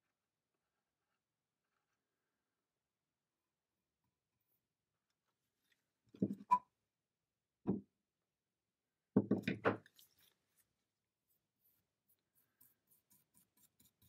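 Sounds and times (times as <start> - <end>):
wood knocking on workbench: 9.2 - 9.8.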